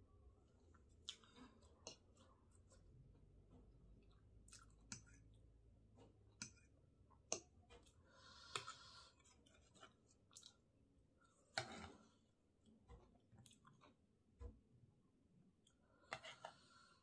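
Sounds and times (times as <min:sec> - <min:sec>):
chewing noodles: 0:04.0 - 0:05.4, 0:07.3 - 0:10.6.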